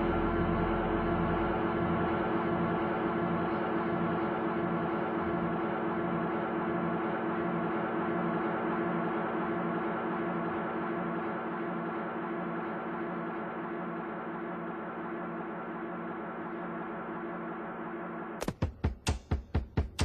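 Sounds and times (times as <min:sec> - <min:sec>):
ambient drone music: 0:00.0 - 0:07.8.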